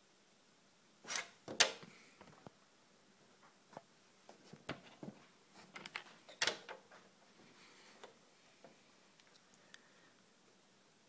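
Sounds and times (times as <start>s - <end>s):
handling clicks and creaks: 4.6s - 7.0s.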